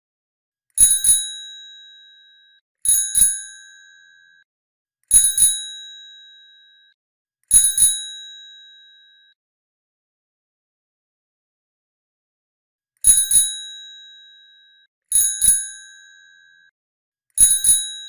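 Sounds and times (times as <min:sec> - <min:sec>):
bicycle bell ringing: 0:00.8 - 0:04.4, 0:05.2 - 0:06.9, 0:07.6 - 0:09.1, 0:13.1 - 0:16.7.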